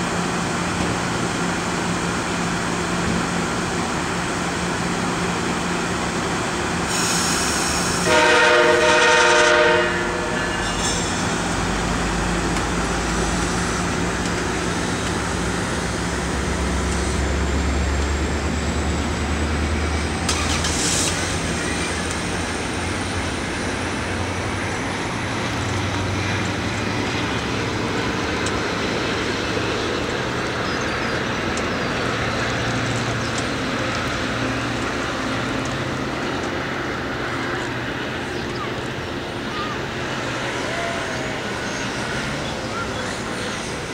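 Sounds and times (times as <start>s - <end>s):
diesel locomotive rumbling: 0.0s - 43.9s
short hiss: 6.9s - 8.0s
train horn blast: 8.0s - 10.6s.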